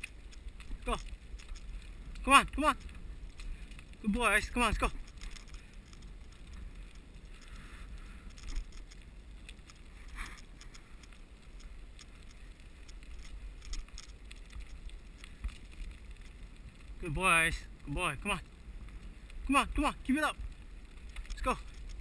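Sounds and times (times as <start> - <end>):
light clicks and rattles: 0.0 - 22.0
wheels rolling on asphalt: 0.0 - 22.0
wind rumble on microphone: 0.0 - 22.0.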